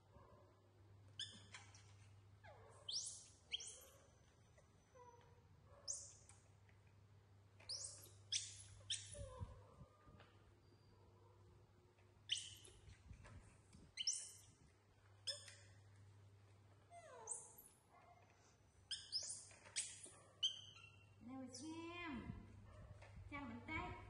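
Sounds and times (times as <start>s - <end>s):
monkeys squeaking and chirping: 1.2s - 4.2s, 7.6s - 9.6s, 12.3s - 13.0s, 13.9s - 14.6s, 15.2s - 15.8s, 17.0s - 17.7s, 18.8s - 21.2s.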